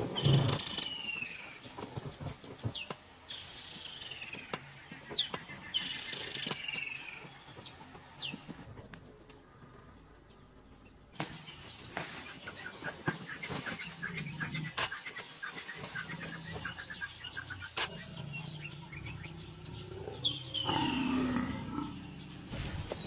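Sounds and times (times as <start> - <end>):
big cat growling and snarling: 17.8 - 22.4.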